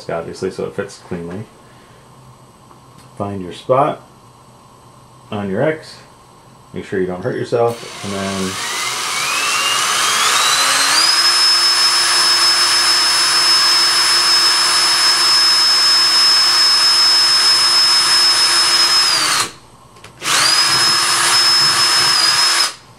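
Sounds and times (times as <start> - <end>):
electric drill whining: 7.7 - 19.6, 20.2 - 22.8.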